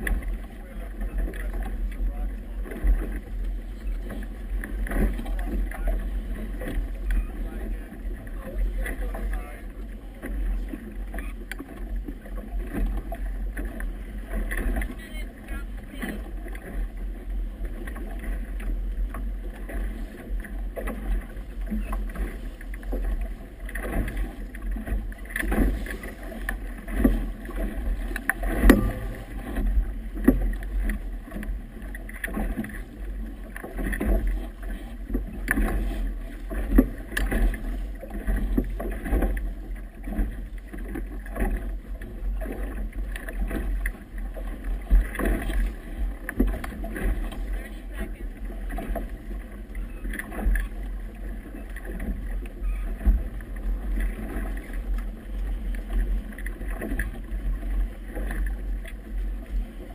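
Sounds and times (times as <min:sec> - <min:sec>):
water slapping boat hull: 0:00.0 - 0:59.9.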